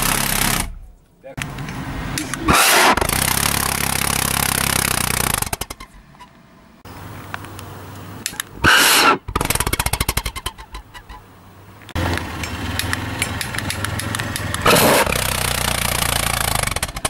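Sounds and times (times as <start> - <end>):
pulse jet firing rapid pulses: 0.0 - 0.8, 2.5 - 5.8, 8.6 - 10.8, 14.6 - 17.0.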